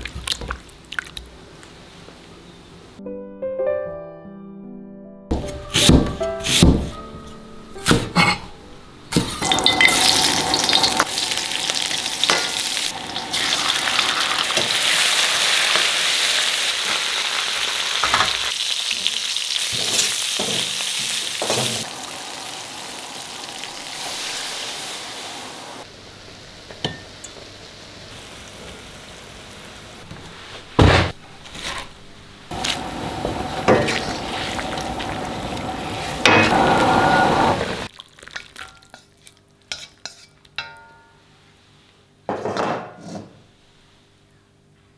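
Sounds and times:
food sizzling in wok: 9.2s - 30.8s, 32.5s - 37.9s.

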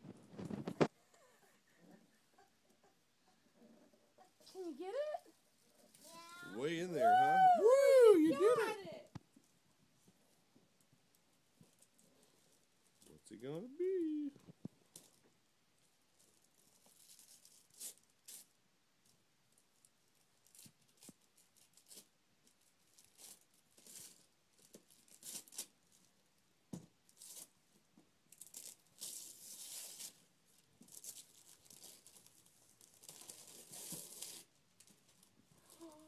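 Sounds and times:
wrapping paper tearing: 16.5s - 18.5s, 22.9s - 26.1s, 27.1s - 27.5s, 28.3s - 36.0s.

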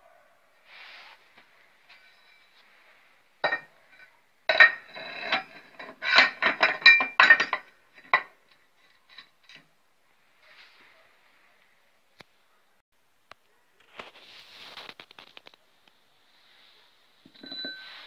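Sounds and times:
steel parts clanking: 1.9s - 2.6s, 3.4s - 9.6s, 17.3s - 18.0s.

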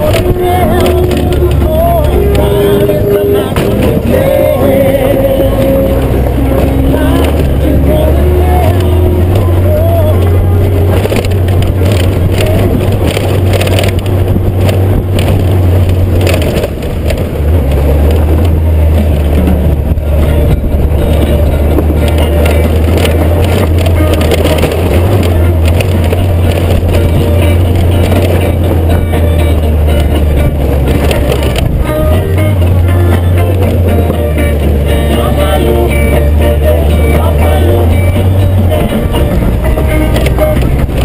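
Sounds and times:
motorcycle engine drone: 0.0s - 41.0s
tyres on gravel: 0.0s - 41.0s
wind noise: 0.0s - 41.0s.

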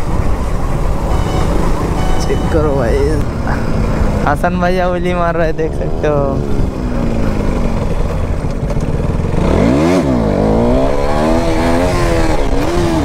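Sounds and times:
motorcycle engine revving: 5.8s - 13.0s.

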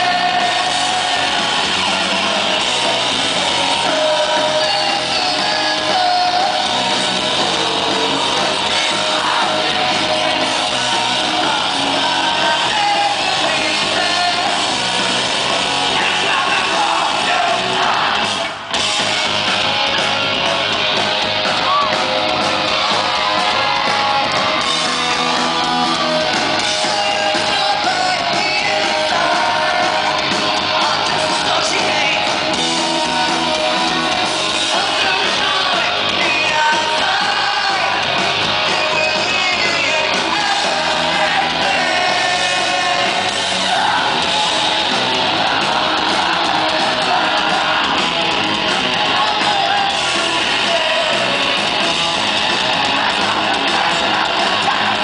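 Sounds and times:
man singing and shouting: 0.0s - 2.6s, 3.5s - 14.9s, 15.8s - 18.6s, 25.0s - 44.2s, 49.0s - 51.8s
live rock band playing: 0.0s - 55.0s.

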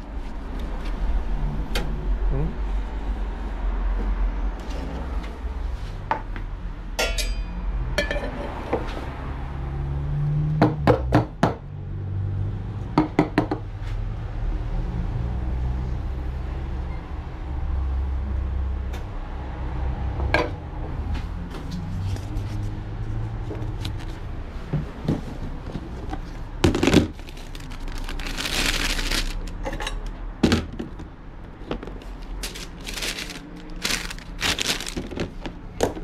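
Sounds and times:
cups and metal clinking: 7.0s - 8.5s.

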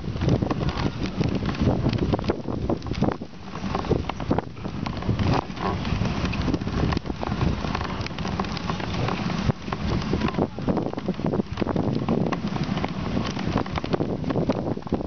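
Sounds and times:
snow crackling and clicking: 0.0s - 15.0s
wind buffeting microphone: 0.0s - 15.0s
sled runners hissing on snow: 3.3s - 15.0s.

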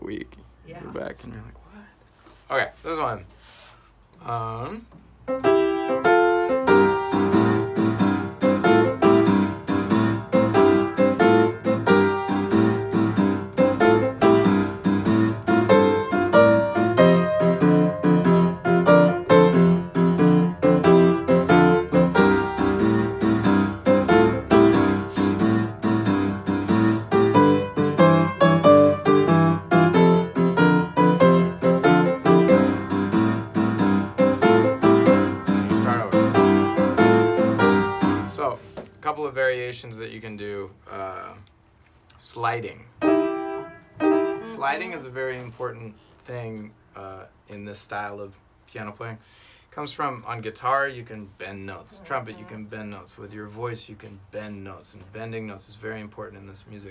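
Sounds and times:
blues piano piece: 4.4s - 39.0s, 42.9s - 45.6s.

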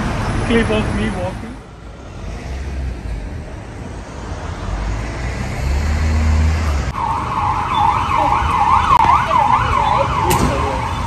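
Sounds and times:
street traffic rumble: 0.0s - 11.0s
emergency vehicle siren yelping: 6.9s - 11.0s.

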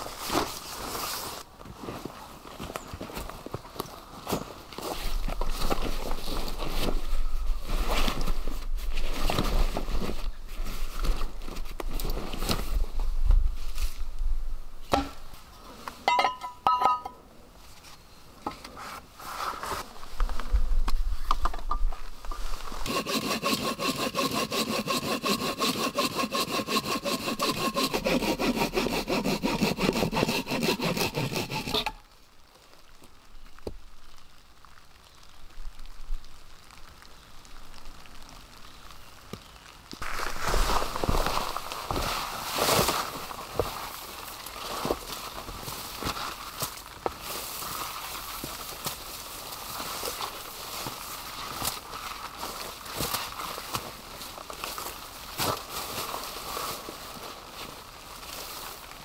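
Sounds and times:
hand saw cutting log: 22.8s - 32.0s.

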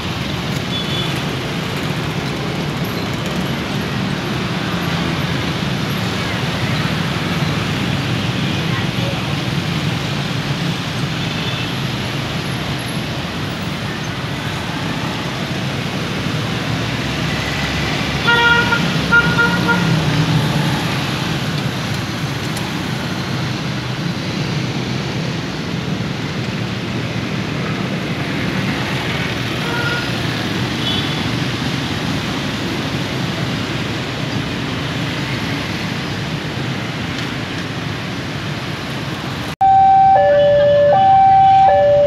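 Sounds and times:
car and motorbike engines: 0.0s - 42.0s
two-tone crossing alarm: 39.6s - 42.0s.

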